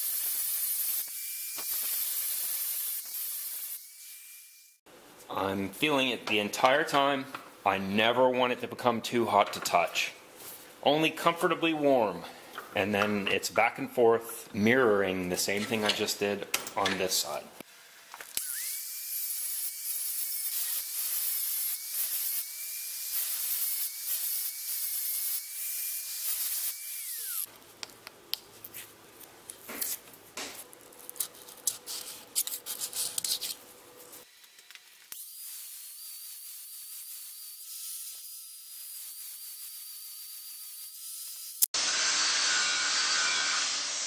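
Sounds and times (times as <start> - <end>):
angle grinder grinding steel: 0.0 - 4.8, 18.4 - 27.5, 35.1 - 44.0.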